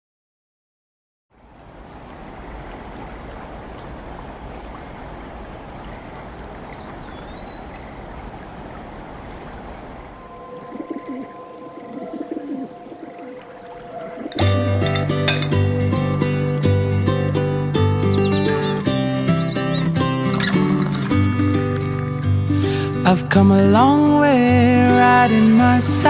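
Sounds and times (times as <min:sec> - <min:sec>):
steady outdoor hiss: 0:01.3 - 0:26.0
pigeons cooing: 0:02.4 - 0:16.5, 0:17.8 - 0:21.2
short high bird chirp: 0:18.0 - 0:20.0.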